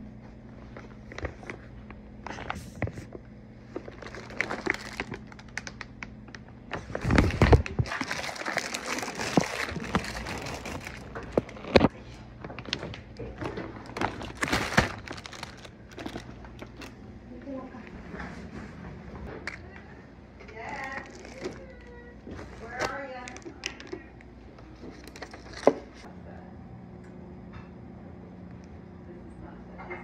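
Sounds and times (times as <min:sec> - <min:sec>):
plastic bag rustling: 0:00.6 - 0:17.6, 0:20.5 - 0:24.1.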